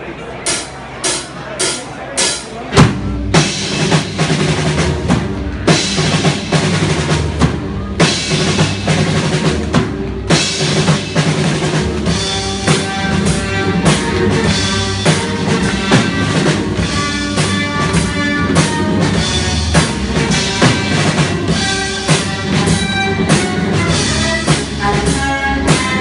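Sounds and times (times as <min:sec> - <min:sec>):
drum kit steady beat: 0:00.5 - 0:26.0
music with sustained notes: 0:04.8 - 0:26.0.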